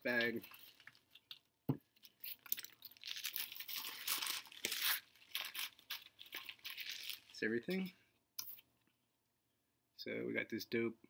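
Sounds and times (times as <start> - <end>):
packaging bag crinkling: 2.0 - 7.4.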